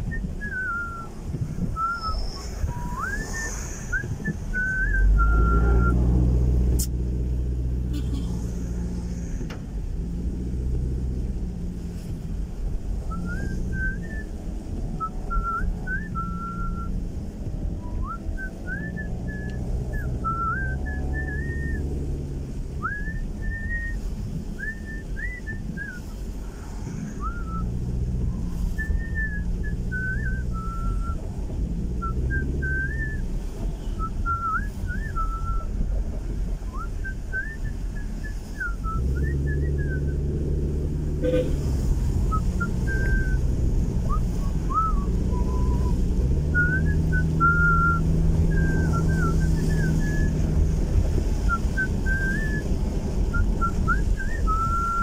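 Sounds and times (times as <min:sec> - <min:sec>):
person whistling a tune: 0:00.0 - 0:01.2, 0:01.8 - 0:06.0, 0:13.1 - 0:17.0, 0:17.8 - 0:21.9, 0:22.8 - 0:26.2, 0:27.1 - 0:31.2, 0:32.0 - 0:35.8, 0:36.7 - 0:40.3, 0:42.3 - 0:50.4, 0:51.4 - 0:55.0
car engine hum and road noise: 0:00.0 - 0:55.0.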